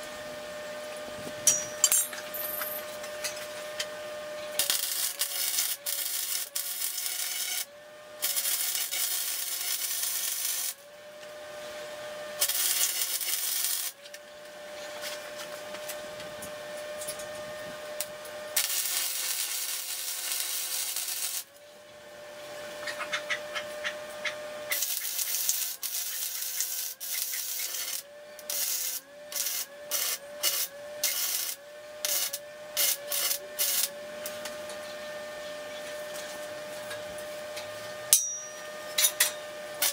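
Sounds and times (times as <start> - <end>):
welding machine hum: 0.8 - 35.0, 35.9 - 39.9
arc welding crackle: 2.5 - 10.9, 12.4 - 14.2, 16.7 - 21.7, 24.1 - 34.6.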